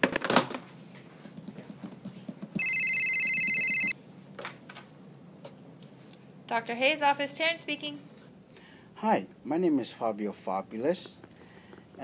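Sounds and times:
desk phone ringing: 2.6s - 4.0s.

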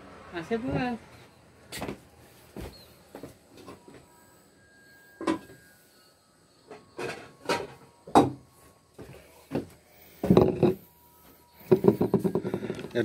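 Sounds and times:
objects knocking and clunking: 5.2s - 5.6s, 6.6s - 11.0s, 11.6s - 13.0s.

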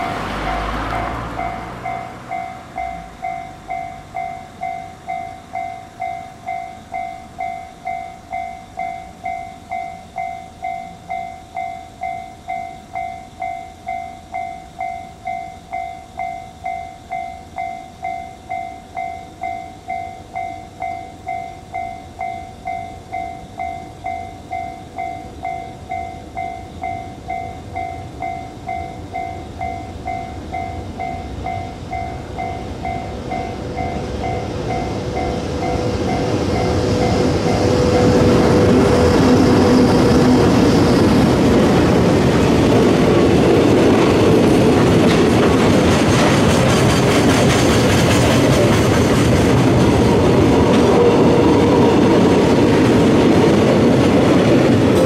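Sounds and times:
level crossing bell ringing: 0.0s - 38.1s.

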